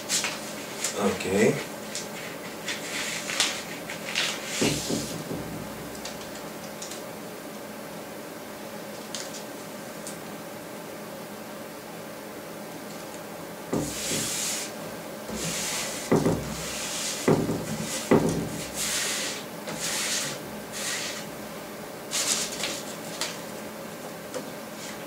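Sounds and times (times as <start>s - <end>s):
hands rubbing paper tape: 1.9s - 5.2s, 13.8s - 14.7s, 15.3s - 21.3s, 22.1s - 23.4s
dull knocks: 16.1s - 16.6s, 17.3s - 18.6s.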